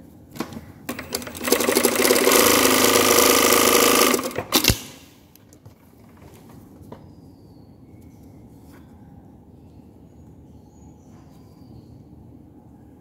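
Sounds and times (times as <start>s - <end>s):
sewing machine clicks and knock: 0.4s - 5.0s
sewing machine stitching: 0.9s - 5.0s.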